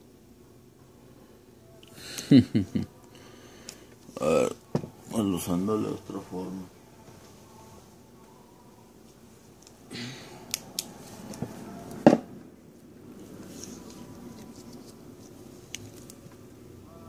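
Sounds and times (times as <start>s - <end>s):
knock: 12.1s - 12.3s.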